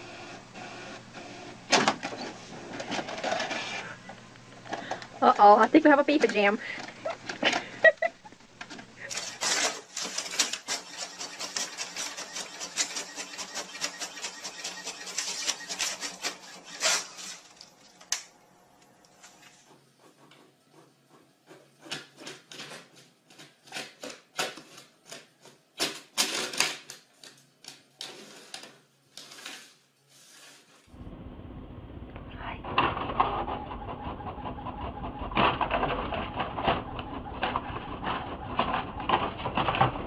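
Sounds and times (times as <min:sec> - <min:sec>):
inkjet printer clicking and whirring: 0:09.1 - 0:18.3, 0:32.8 - 0:40.0.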